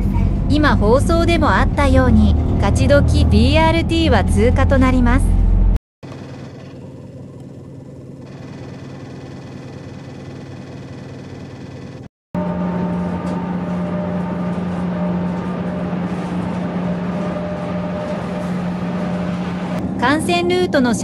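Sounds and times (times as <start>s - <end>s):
road noise: 0.0s - 5.8s, 12.4s - 20.8s
whining tones: 0.0s - 5.8s, 12.4s - 20.1s
bus drive hum: 0.0s - 21.0s.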